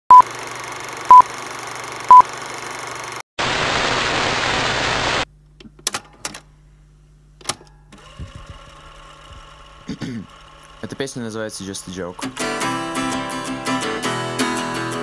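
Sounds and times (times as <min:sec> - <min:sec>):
crackling film hiss: 0:03.4 - 0:05.3
loud tv static: 0:03.4 - 0:05.3.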